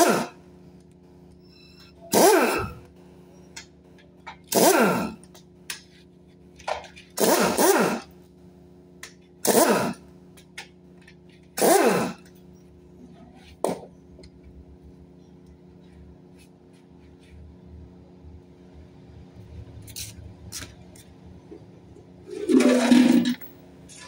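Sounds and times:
pneumatic wrench whirring: 0.0 - 0.5, 1.4 - 3.0, 4.3 - 5.4, 7.0 - 8.2, 9.4 - 10.1, 11.4 - 12.5
steady low hum: 0.0 - 24.0.

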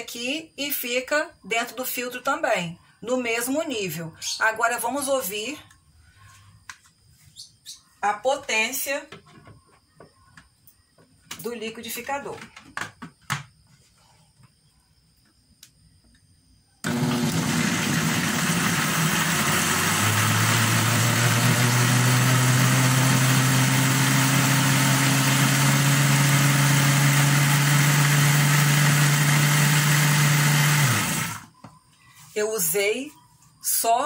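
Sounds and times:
blender motor humming: 16.8 - 31.5.

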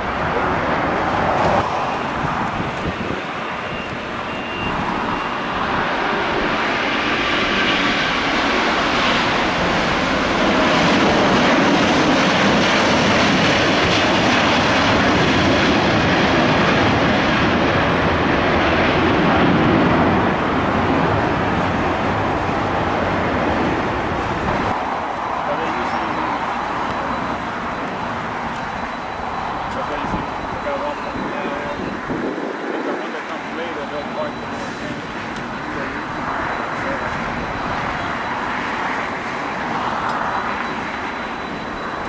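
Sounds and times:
jet engines roaring: 0.0 - 42.0.

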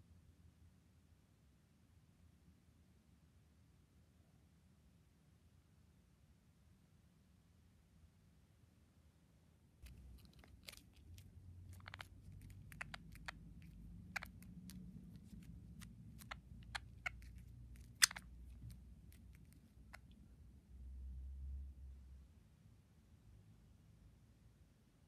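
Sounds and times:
beak and claws tapping plastic: 9.8 - 20.1.

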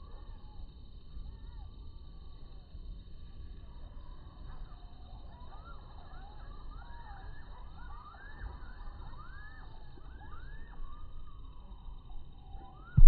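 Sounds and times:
distant siren wailing: 3.7 - 13.0.

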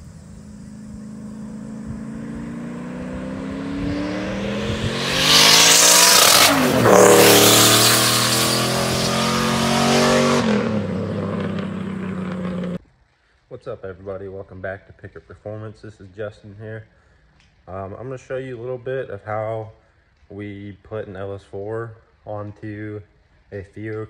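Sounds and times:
car engine accelerating past: 0.0 - 12.8.

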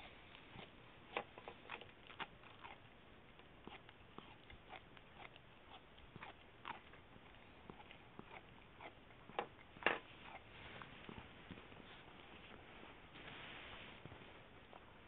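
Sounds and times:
dog gnawing on chew: 0.3 - 11.6.

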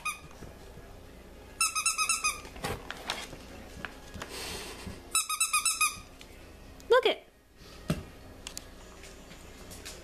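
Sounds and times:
squeaky dog toy squeaking: 0.0 - 0.3, 1.6 - 2.5, 5.1 - 6.1.

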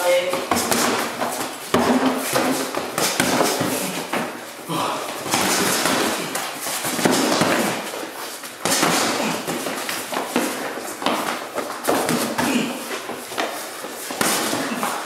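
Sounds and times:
heavy breathing: 2.3 - 11.0.

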